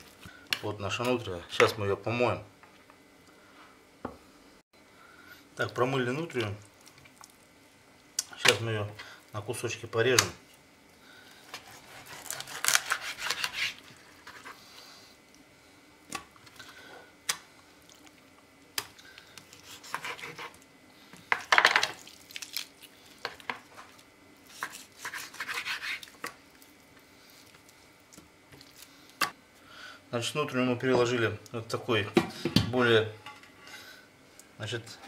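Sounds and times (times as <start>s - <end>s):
knife sawing meat on board: 11.5s - 14.6s, 19.6s - 20.6s, 24.5s - 26.1s.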